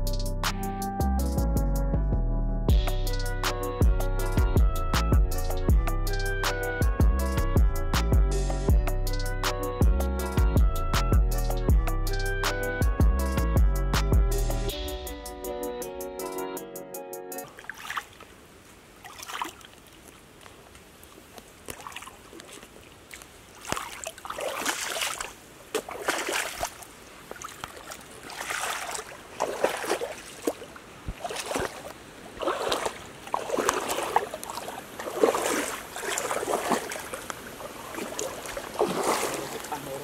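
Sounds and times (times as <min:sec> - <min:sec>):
water splashing in a stream: 0:17.4 - 0:40.0.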